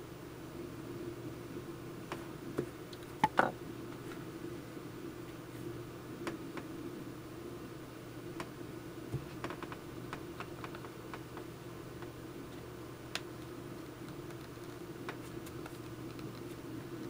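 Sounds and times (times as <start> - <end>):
steady low hum: 0.0 - 17.0
small clicks and taps: 9.2 - 12.1.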